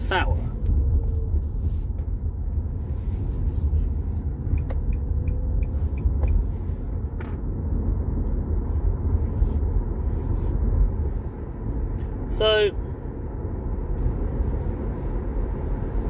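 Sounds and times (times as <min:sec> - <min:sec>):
car cabin road rumble: 0:00.0 - 0:16.0.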